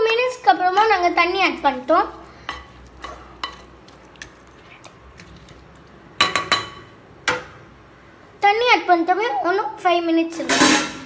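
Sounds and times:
ladle stirring curry in pot: 0.0s - 6.8s.

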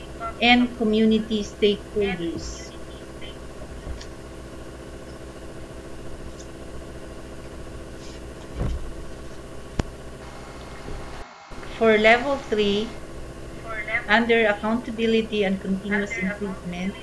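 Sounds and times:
low mechanical room hum: 0.0s - 17.0s
soft thump: 8.6s - 8.9s.

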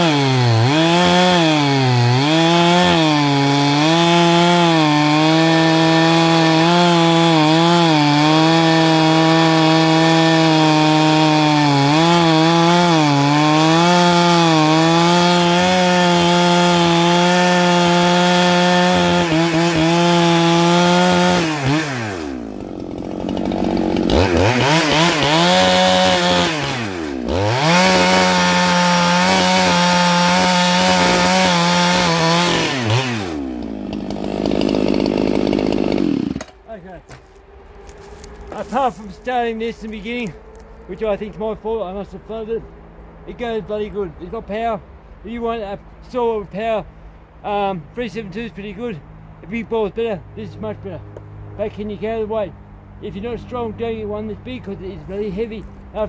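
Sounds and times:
chainsaw cutting a log: 0.0s - 41.4s, 54.6s - 56.0s.

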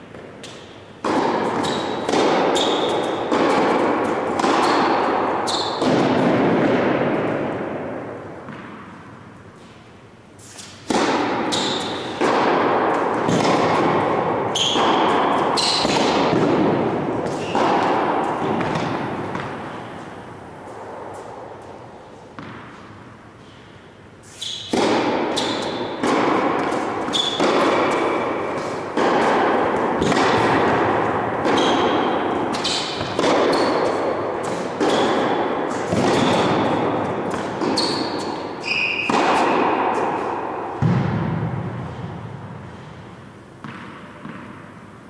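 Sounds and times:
tennis ball struck by rackets: 0.1s - 9.1s, 10.6s - 23.2s, 24.6s - 43.0s, 43.6s - 44.9s
tennis ball bouncing: 0.1s - 9.2s, 10.8s - 23.2s, 24.6s - 42.9s, 43.5s - 45.0s.

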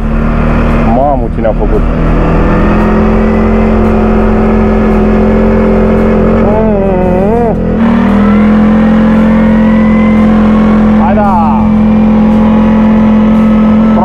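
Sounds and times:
atv engine running: 0.0s - 14.0s
wavering voice-like sound: 6.4s - 7.7s.

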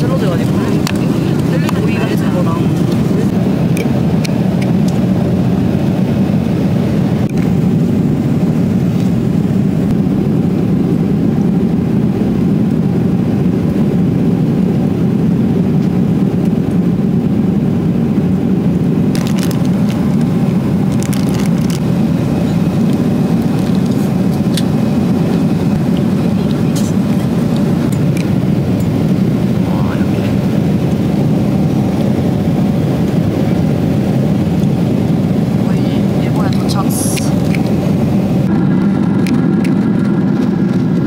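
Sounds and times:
airliner cabin roar: 0.0s - 41.0s
short crackles: 19.1s - 21.9s.

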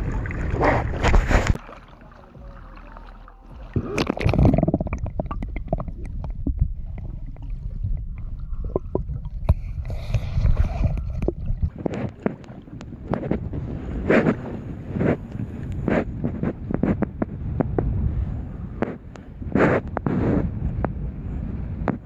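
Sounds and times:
water splashing: 0.0s - 16.9s
underwater rumbling and gurgling: 0.0s - 22.0s
underwater knocks and clicks: 3.6s - 18.0s.

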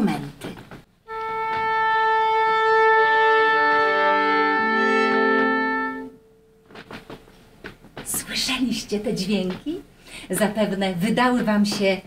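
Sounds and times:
oboe holding a steady note: 1.0s - 6.7s
orchestra instruments tuning: 1.0s - 7.2s.

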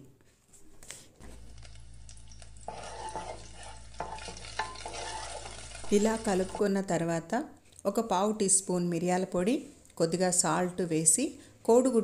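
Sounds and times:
eggs sizzling in a pan: 1.2s - 7.3s
spatula scraping a pan: 1.4s - 6.7s.

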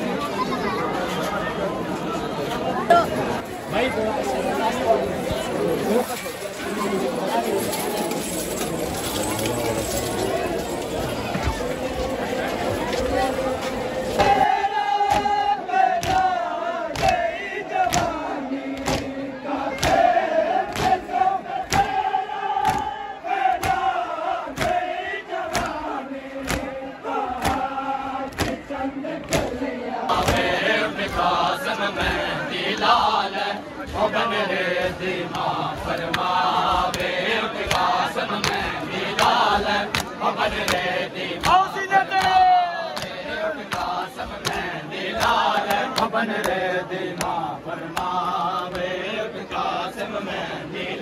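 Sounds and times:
rhythmic chest-beating strikes: 5.3s - 33.2s, 33.8s - 50.9s
crowd of men chanting in unison: 12.2s - 51.0s
hands slapping chests: 16.0s - 16.3s, 22.6s - 22.9s, 23.6s - 23.9s, 25.5s - 25.8s, 27.4s - 27.7s, 28.3s - 28.6s, 37.7s - 41.6s.

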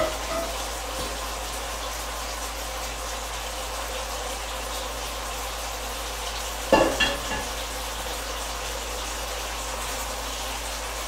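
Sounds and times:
metal saucepan clanking on stove grate: 0.0s - 1.2s, 6.8s - 7.5s
chicken sizzling in a pan: 0.0s - 11.0s.

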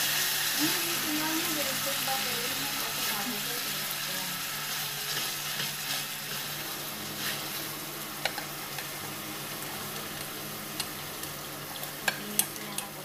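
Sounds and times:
meat sizzling in sauce: 0.0s - 13.0s
chopsticks tapping a metal pot: 8.2s - 8.9s, 12.0s - 13.0s.

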